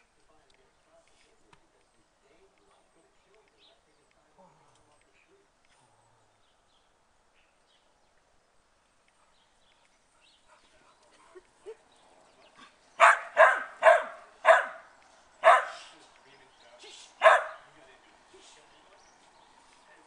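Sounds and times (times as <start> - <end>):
dog barking: 13.0 - 15.9, 17.2 - 17.7.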